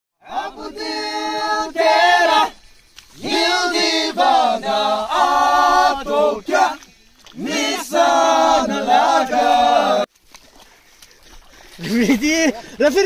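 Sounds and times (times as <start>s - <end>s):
men singing without instruments: 0.2s - 2.6s, 3.2s - 10.1s.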